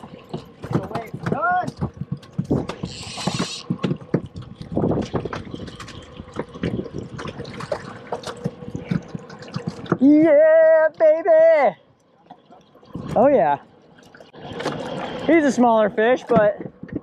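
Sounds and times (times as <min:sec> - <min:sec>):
knocks and thumps: 0:00.0 - 0:10.1, 0:16.3 - 0:17.0
water splashing and dripping: 0:00.0 - 0:17.0.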